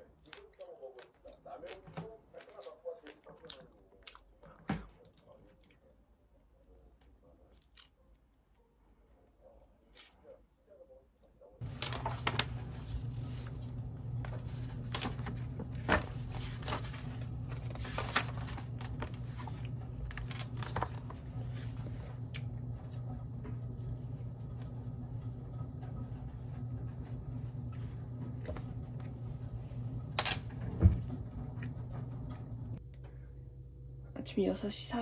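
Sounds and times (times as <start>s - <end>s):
low hum: 10.8s - 35.0s.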